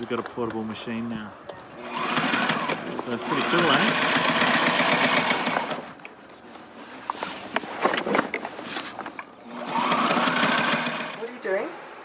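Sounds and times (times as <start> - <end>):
sewing machine stitching fast: 1.8 - 5.9, 9.5 - 11.3.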